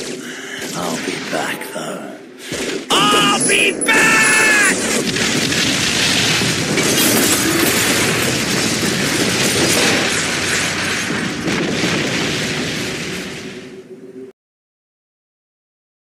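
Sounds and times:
explosions booming and crashing: 0:02.4 - 0:14.0.

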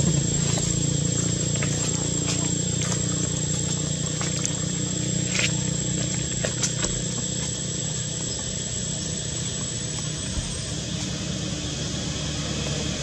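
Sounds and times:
high steady whine: 0:00.0 - 0:13.0.

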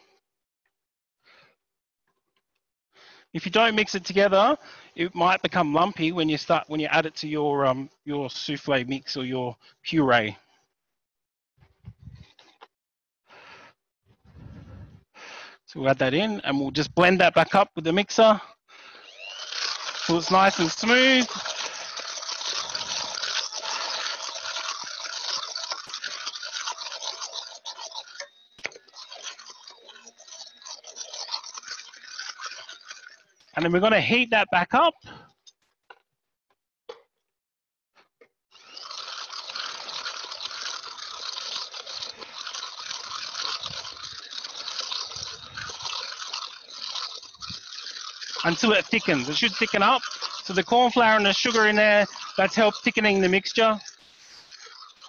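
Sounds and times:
stick blender whirring: 0:14.3 - 0:35.3, 0:38.5 - 0:55.0.

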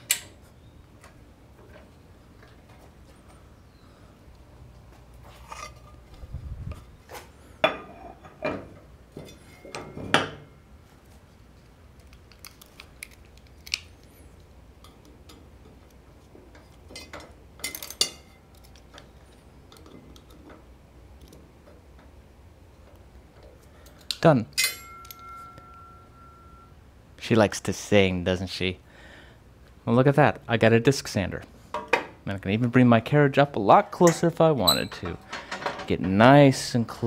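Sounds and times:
metal clanks and knocks: 0:07.6 - 0:10.6, 0:34.1 - 0:36.3.

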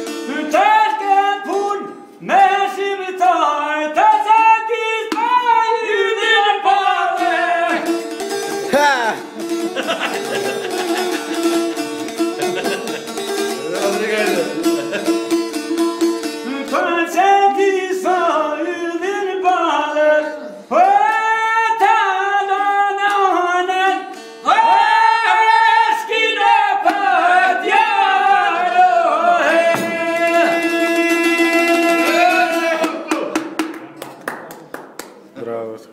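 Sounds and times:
man singing: 0:00.0 - 0:08.0, 0:08.6 - 0:09.4, 0:16.4 - 0:33.4
bowed string instrument: 0:07.1 - 0:18.4.

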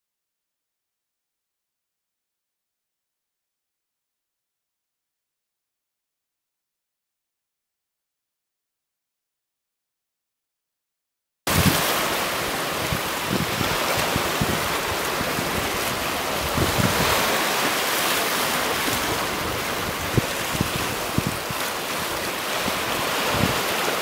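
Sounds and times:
low thumps of waves: 0:11.5 - 0:24.0
waves lapping on rocks: 0:11.5 - 0:24.0.

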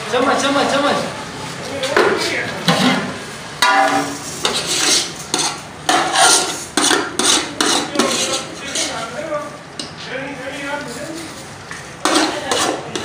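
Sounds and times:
spoon scraping metal pot: 0:02.7 - 0:09.1, 0:11.2 - 0:13.0.

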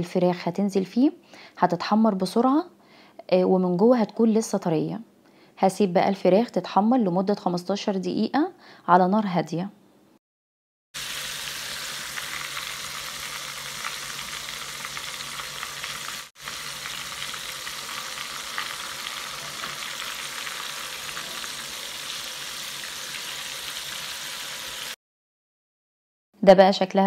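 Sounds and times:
deep-frying sizzle and crackle: 0:11.0 - 0:25.0.

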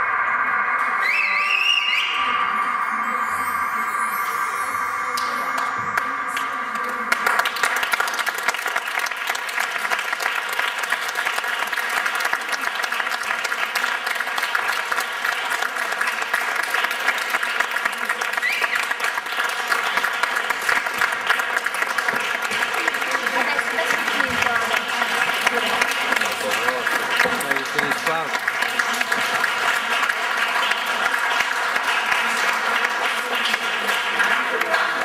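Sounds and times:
held musical tone: 0:00.0 - 0:08.1
audience applauding: 0:05.2 - 0:35.0.

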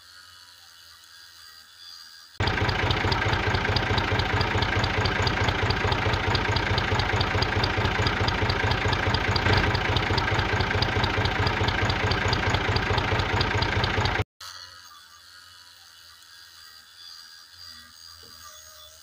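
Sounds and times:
regular ticking: 0:02.4 - 0:14.3
motor chugging: 0:02.4 - 0:19.0.

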